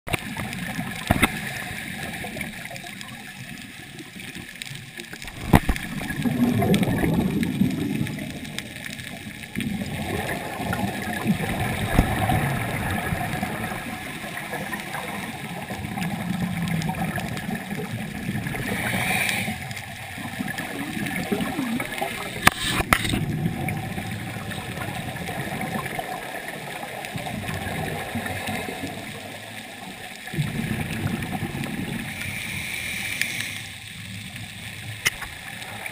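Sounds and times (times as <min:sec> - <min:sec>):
scuba regulator breathing bubbles: 0:09.6 - 0:25.9, 0:30.3 - 0:34.1.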